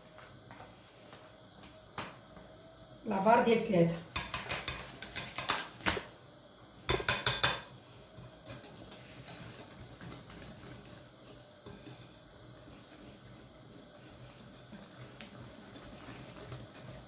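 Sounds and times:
wire whisk scraping in batter: 8.4s - 17.0s.

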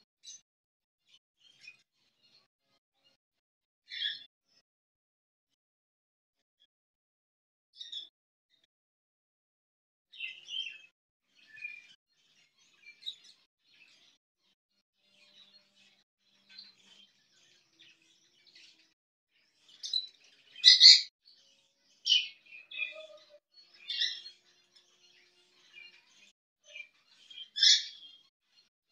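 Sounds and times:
budgerigar chirping: 20.6s - 21.1s, 27.6s - 28.0s.

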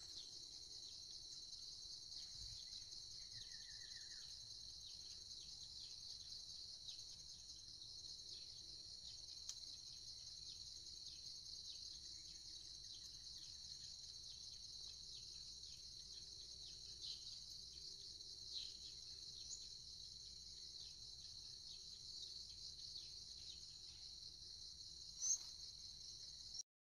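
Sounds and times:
insects trilling: 0.0s - 26.6s
bird chirps: 2.1s - 6.3s, 8.4s - 24.2s, 25.0s - 25.7s.

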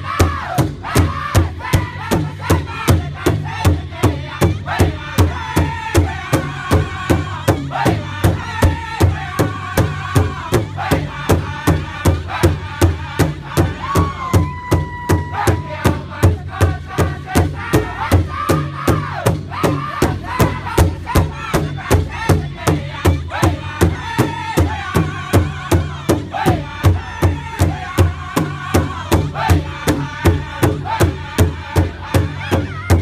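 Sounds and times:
big drum beaten steadily: 0.0s - 33.0s
group singing in high voices: 0.0s - 33.0s.

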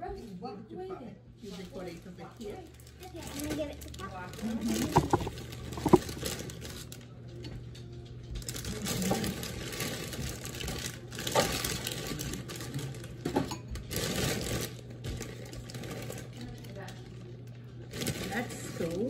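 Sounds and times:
plastic bag crinkling: 2.4s - 7.0s, 8.4s - 13.2s, 13.8s - 17.2s, 17.9s - 19.0s.

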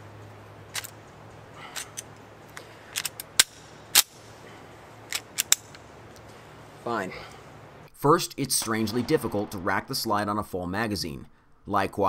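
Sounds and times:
pistol slide metallic clacks: 0.7s - 1.0s, 1.7s - 4.2s, 5.1s - 6.2s.

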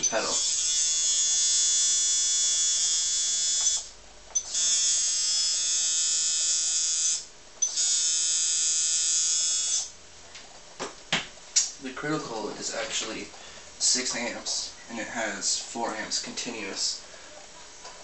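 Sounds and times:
tattoo machine buzzing: 0.0s - 10.0s.

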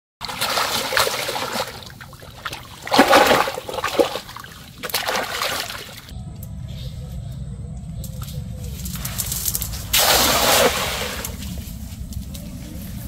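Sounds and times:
water splashing: 0.2s - 6.1s, 9.9s - 11.5s.

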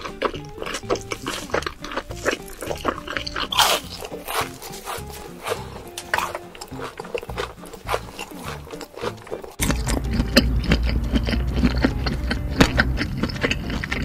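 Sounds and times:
background music: 0.0s - 14.0s
cartoon chewing and munching: 0.0s - 14.0s.

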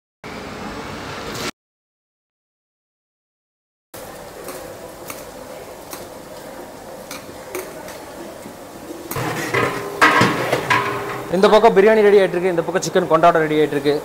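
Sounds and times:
onions hissing in a pot: 4.0s - 14.0s
ladle clicking on metal pot: 9.1s - 11.5s.

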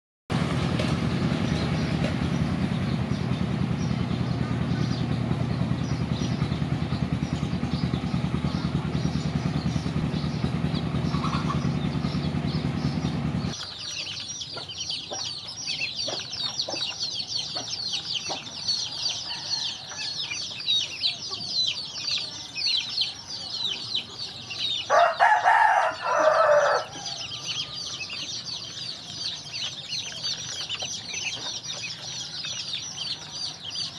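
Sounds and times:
loud low drone: 0.3s - 13.6s
ducklings peeping: 0.3s - 33.9s.

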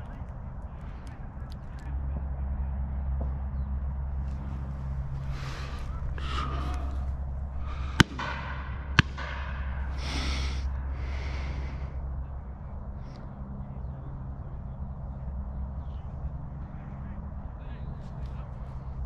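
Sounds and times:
shotgun shots: 7.9s - 9.9s.

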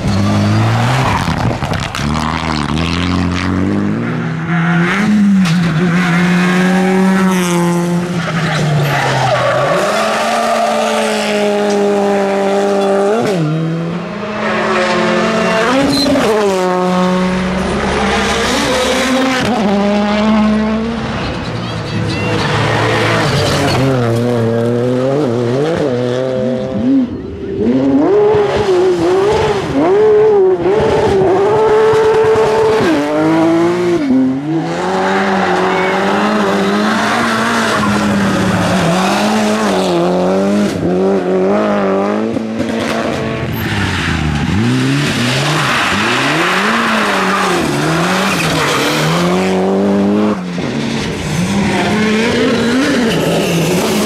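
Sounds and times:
rally car engines revving: 0.0s - 54.0s.

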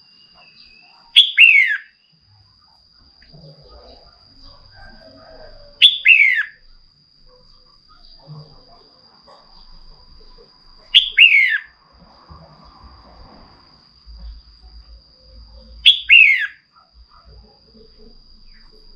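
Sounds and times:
bird calls: 0.4s - 2.0s, 3.8s - 6.6s, 10.9s - 11.7s, 15.8s - 16.6s.

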